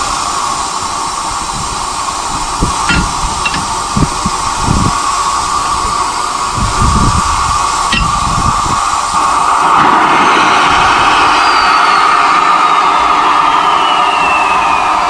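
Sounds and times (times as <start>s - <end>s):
locomotive steam hiss: 0.0s - 15.0s
low rumbles: 1.5s - 9.7s
metallic clink: 2.8s - 3.8s, 7.9s - 8.2s.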